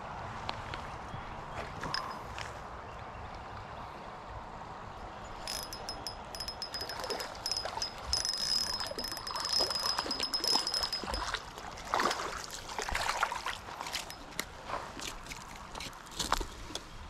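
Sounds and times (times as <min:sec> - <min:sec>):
fishing reel whining and clicking: 0:01.9 - 0:02.2, 0:05.5 - 0:11.2, 0:14.0 - 0:14.2
water splashes: 0:09.1 - 0:15.7.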